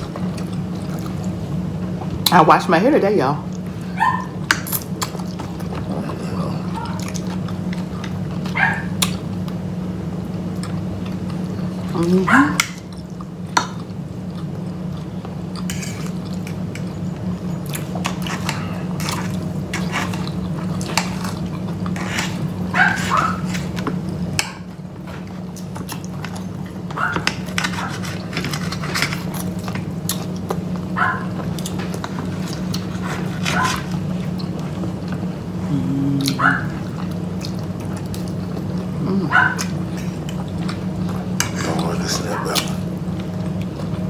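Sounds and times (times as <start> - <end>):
steady low hum: 0.0 - 44.0
dog whining: 3.9 - 4.4, 8.5 - 9.0, 35.7 - 36.9.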